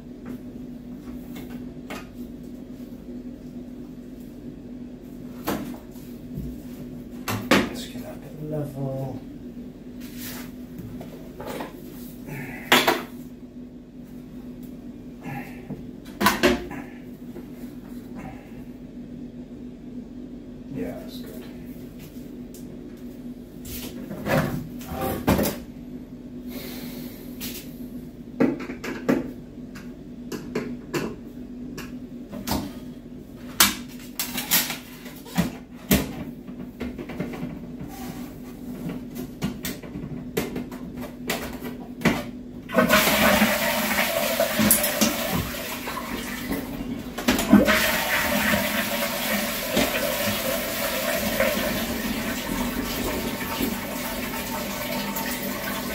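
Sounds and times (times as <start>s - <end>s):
toilet flush water rushing: 42.7s - 55.9s.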